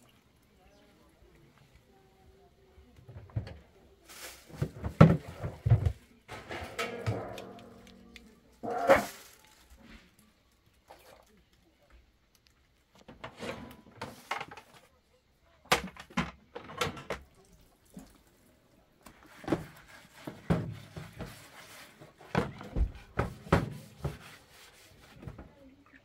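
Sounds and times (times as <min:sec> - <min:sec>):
knocks and thumps: 0:04.5 - 0:09.0, 0:22.3 - 0:24.3.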